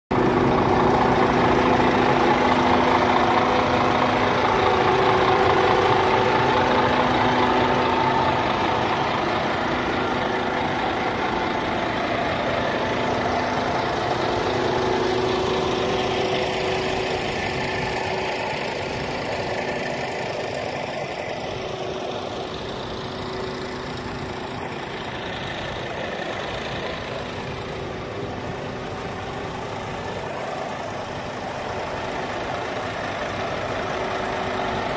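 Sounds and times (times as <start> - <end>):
diesel truck engine idling: 0.1 - 34.9.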